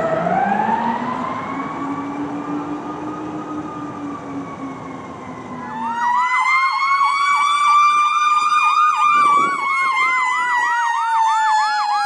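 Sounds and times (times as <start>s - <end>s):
emergency siren wailing: 0.0s - 12.0s
fast siren yelp: 0.0s - 12.0s.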